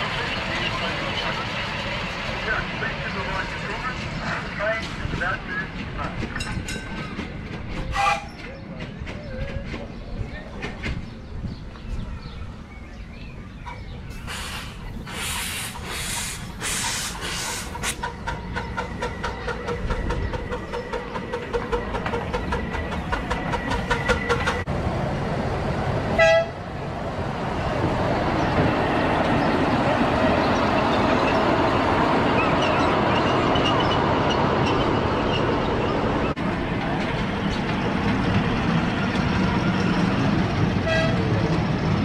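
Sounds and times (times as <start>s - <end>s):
train rumble: 0.0s - 42.0s
locomotive hissing bursts: 14.1s - 18.2s
locomotive toot: 26.2s - 26.6s, 40.8s - 41.3s.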